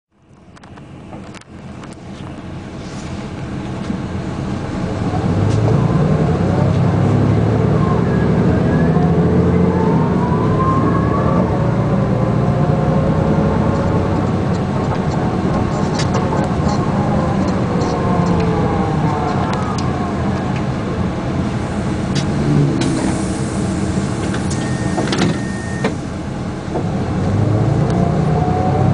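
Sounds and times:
city bus engine running: 0:00.1 - 0:28.9
gearbox whine: 0:13.8 - 0:26.2.

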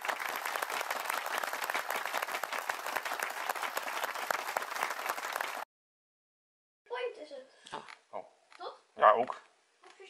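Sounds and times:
crowd clapping: 0:00.0 - 0:05.7.

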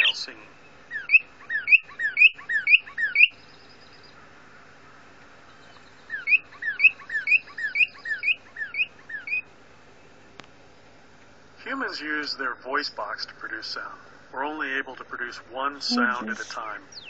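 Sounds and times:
bird song whistles from speaker: 0:00.0 - 0:03.4.

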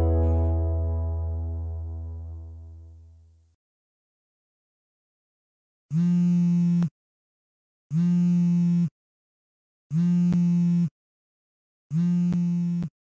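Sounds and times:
smartphone vibrating buzz: 0:05.9 - 0:06.9, 0:07.9 - 0:08.9, 0:09.9 - 0:10.9, 0:11.9 - 0:12.9.

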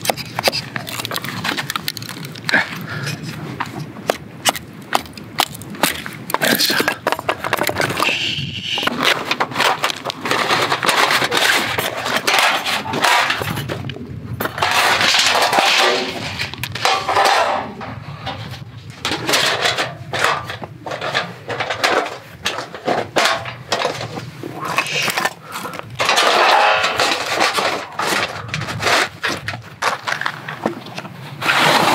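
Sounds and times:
metal stand scraping on gravel: 0:00.0 - 0:31.9
split wood clattering down: 0:04.1 - 0:08.2, 0:08.8 - 0:31.1.

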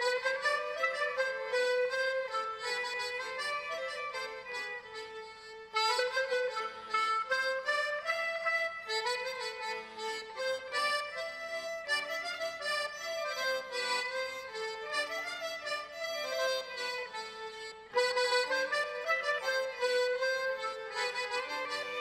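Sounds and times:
folk dance tune on accordion and fiddles: 0:00.0 - 0:22.0.

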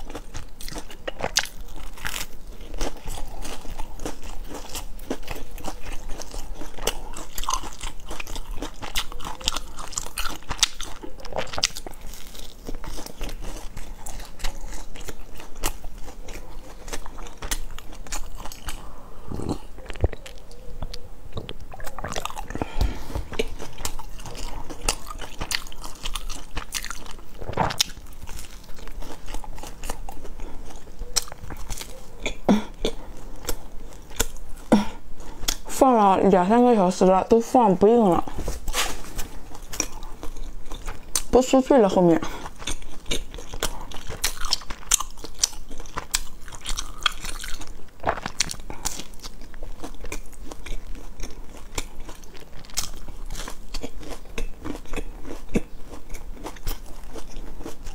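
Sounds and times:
biscuit crunching while chewing: 0:00.0 - 0:35.8, 0:38.2 - 0:57.9
swallowing sounds: 0:18.7 - 0:24.8.

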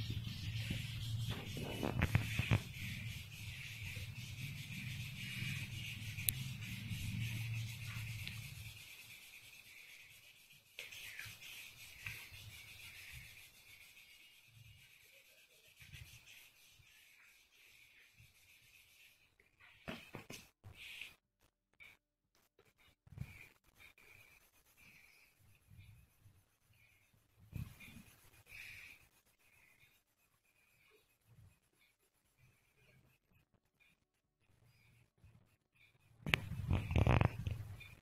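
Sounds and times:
pencil rubbing on paper: 0:00.0 - 0:21.2, 0:21.8 - 0:38.0.

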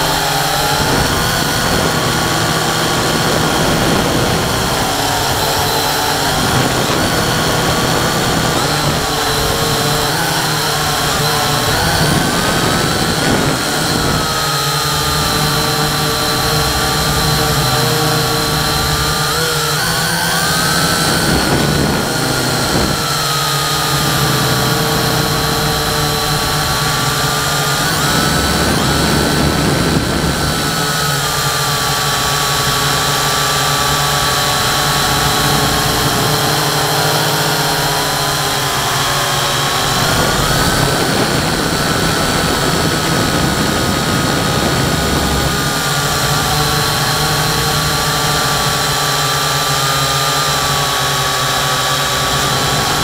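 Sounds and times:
drone propellers whining: 0:00.0 - 0:53.0.

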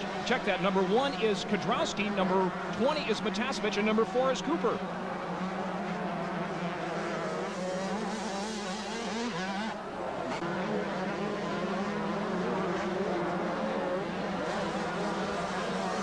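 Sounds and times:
motocross bikes racing: 0:00.0 - 0:16.0.

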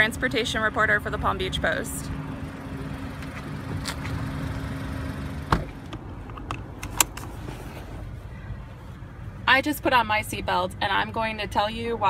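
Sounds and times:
car engine idling: 0:00.0 - 0:11.3
seat belt rustling and clicking: 0:03.2 - 0:04.3, 0:05.5 - 0:08.2.

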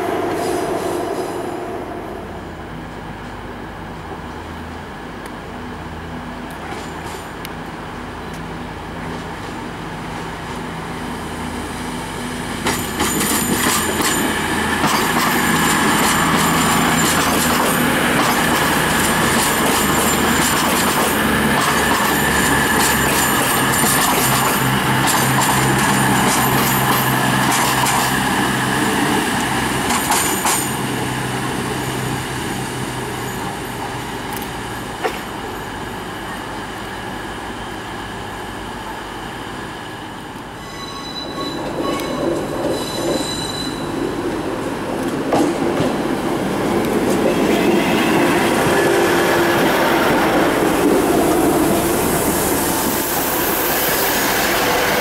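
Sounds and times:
arriving train rumble and hiss: 0:00.0 - 0:55.0
diesel train engine drone: 0:00.0 - 0:55.0
train brakes squealing: 0:18.6 - 0:21.0, 0:40.5 - 0:44.3.

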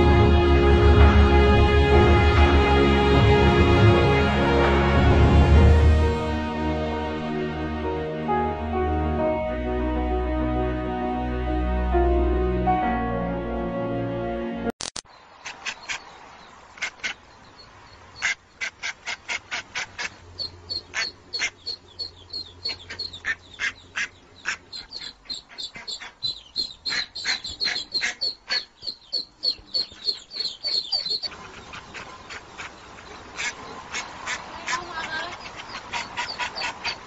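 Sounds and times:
ducklings peeping: 0:15.1 - 0:37.0
duck quacking loudly: 0:18.2 - 0:28.8, 0:29.8 - 0:37.0.

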